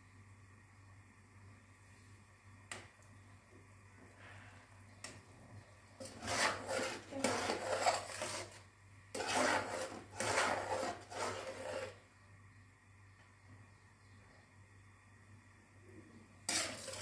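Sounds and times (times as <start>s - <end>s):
metal spoon scraping metal pan: 6.0s - 12.0s, 16.5s - 17.0s.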